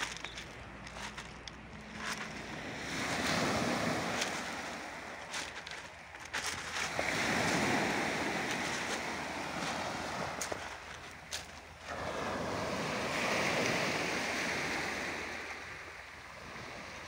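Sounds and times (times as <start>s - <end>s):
waves washing over pebbles: 0.0s - 17.0s.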